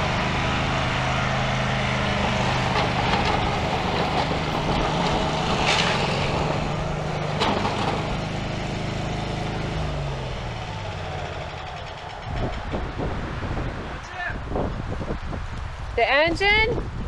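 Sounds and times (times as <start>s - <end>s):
mower engine running under load: 0.0s - 13.5s
engine pop: 2.7s - 8.6s.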